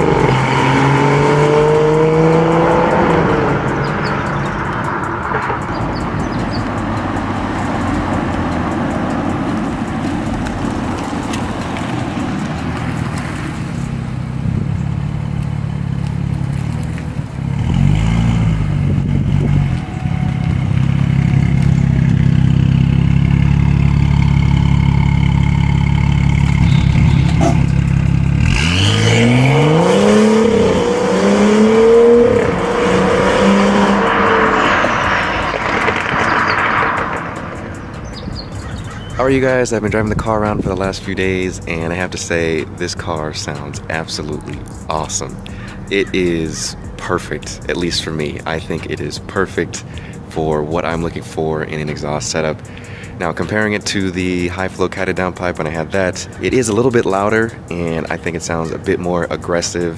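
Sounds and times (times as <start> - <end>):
car accelerating hard: 0.0 - 59.9
car engine idling: 0.0 - 59.9.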